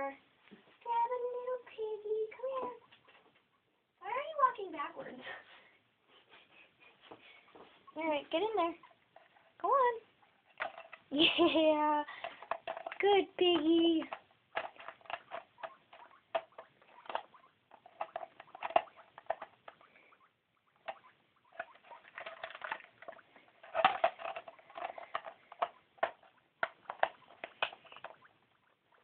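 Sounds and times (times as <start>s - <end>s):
guinea pig in plastic ball clicking: 8.4s - 29.0s.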